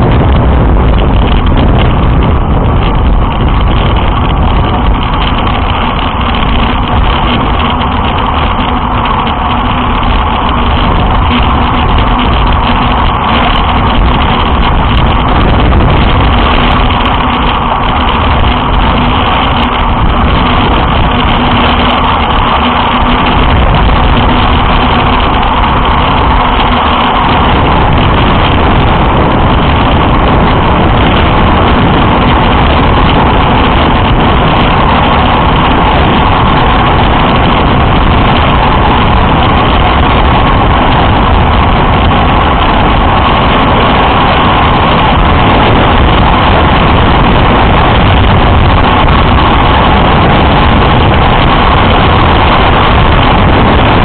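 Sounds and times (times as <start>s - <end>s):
faint steady hum: 0.0s - 54.0s
wind rush on microphone: 0.0s - 54.0s.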